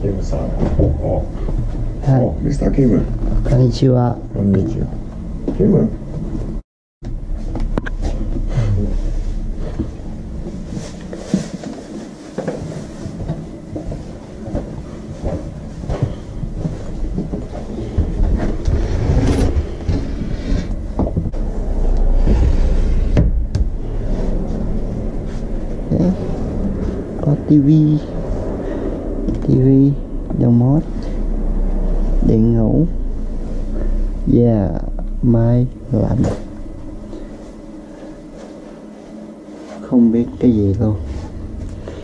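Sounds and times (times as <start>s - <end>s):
sliding doors rolling: 7.2s - 29.4s.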